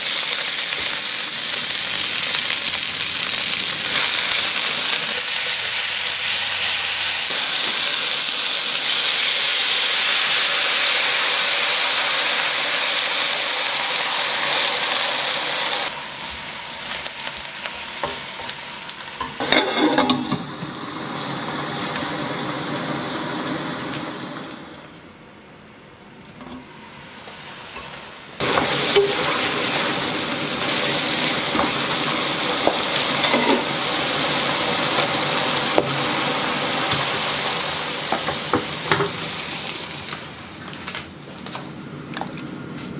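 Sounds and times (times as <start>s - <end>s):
vegetables sizzling in oil: 0.0s - 25.0s, 26.4s - 41.0s
spatula scraping wok: 19.2s - 20.7s, 27.7s - 36.0s.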